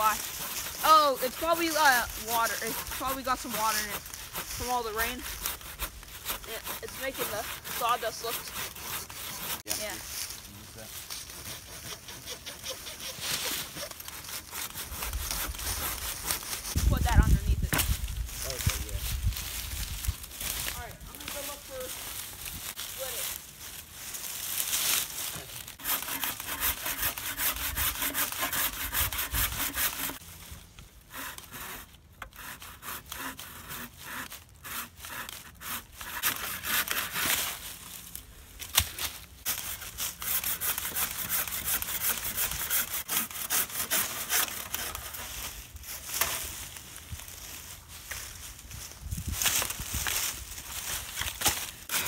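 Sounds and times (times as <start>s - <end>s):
hand saw cutting log: 0.0s - 9.9s, 11.1s - 16.8s, 25.7s - 30.2s, 31.1s - 37.6s, 38.8s - 45.4s, 51.4s - 52.0s.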